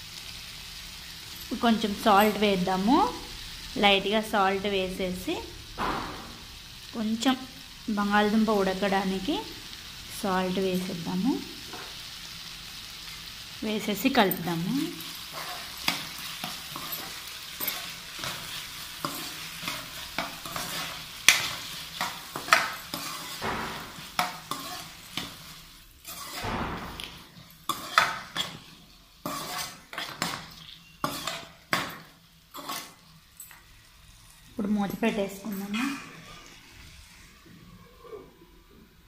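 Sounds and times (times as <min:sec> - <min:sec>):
potatoes sizzling in oil: 0:00.0 - 0:37.5
spoon scraping a pan: 0:14.2 - 0:33.8.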